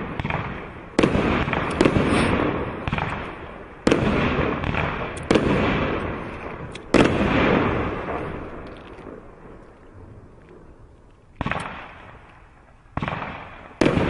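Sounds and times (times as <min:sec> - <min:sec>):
firework shells bursting: 0:00.2 - 0:09.3.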